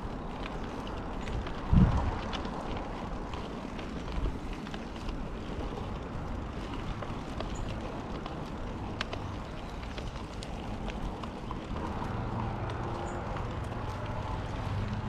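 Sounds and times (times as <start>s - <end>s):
bike tyres rumbling on dirt: 0.0s - 15.0s
sharp ticks and clicks: 0.0s - 15.0s.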